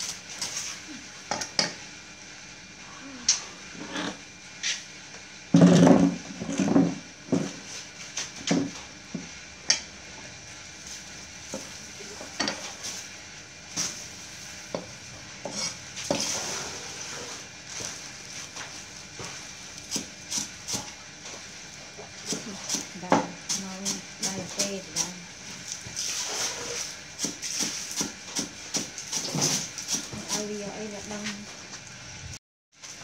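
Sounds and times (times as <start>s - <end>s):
herbs and plastic bag rustling: 29.0s - 31.8s.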